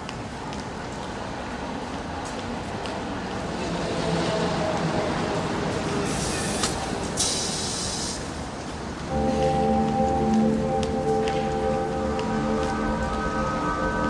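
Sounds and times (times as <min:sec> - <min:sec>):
short bursts of hiss: 0:06.1 - 0:08.3
music: 0:09.1 - 0:14.0.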